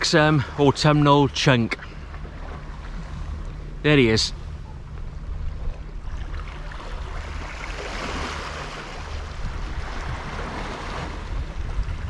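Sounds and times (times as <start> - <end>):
wind buffeting microphone: 4.6 - 12.0.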